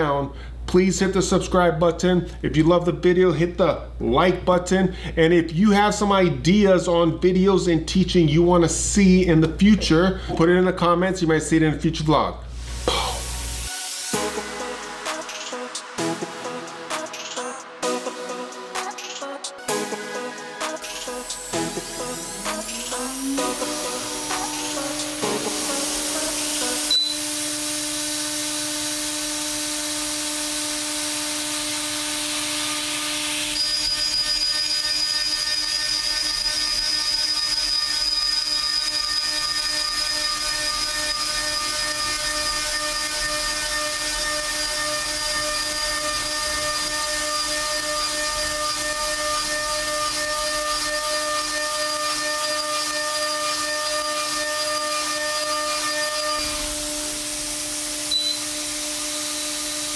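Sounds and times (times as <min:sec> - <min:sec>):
hiss of flying chips: 0:12.5 - 0:15.9
high-pitched metal cutting whine: 0:12.9 - 0:59.9
mill spindle spinning: 0:30.2 - 0:57.0.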